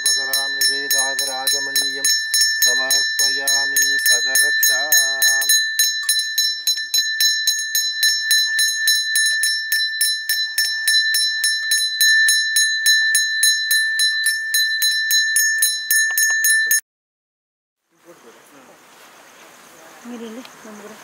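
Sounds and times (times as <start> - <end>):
hand bell rung rapidly: 0.0 - 16.8.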